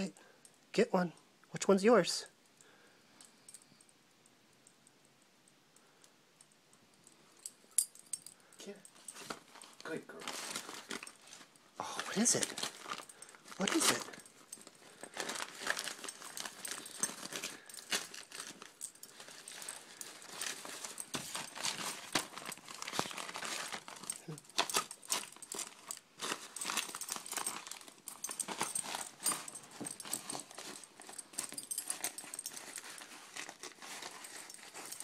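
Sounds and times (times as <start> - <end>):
wrapping paper crinkling and ripping: 9.2 - 35.0.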